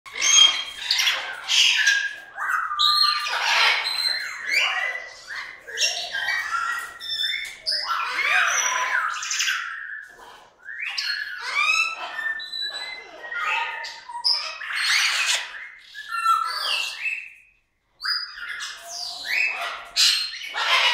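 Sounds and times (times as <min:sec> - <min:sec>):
cockatoo squawking: 0:00.1 - 0:10.3, 0:18.6 - 0:20.9.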